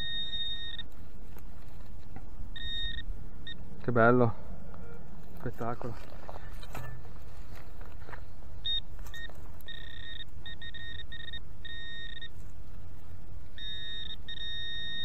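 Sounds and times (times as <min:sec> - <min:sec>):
metal detector beeping: 0:00.0 - 0:01.0, 0:02.5 - 0:03.7, 0:08.6 - 0:12.4, 0:13.5 - 0:15.0.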